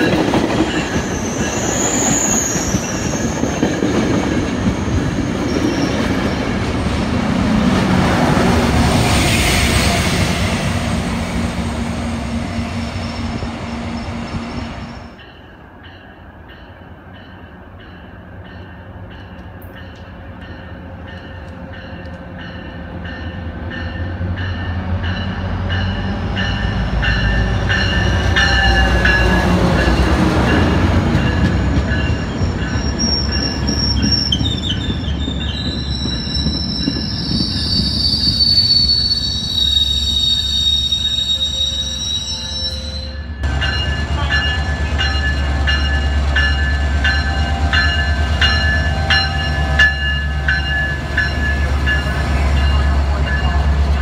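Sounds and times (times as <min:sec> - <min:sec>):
train rumble: 0:00.0 - 0:39.5, 0:41.8 - 0:54.0
diesel locomotive engine drone: 0:00.0 - 0:54.0
high wheel squeal: 0:00.8 - 0:03.5, 0:32.2 - 0:43.4.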